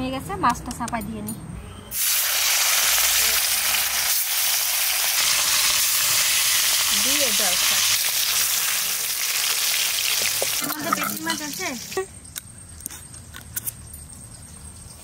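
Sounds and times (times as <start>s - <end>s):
fish frying in hot oil: 1.9s - 10.6s.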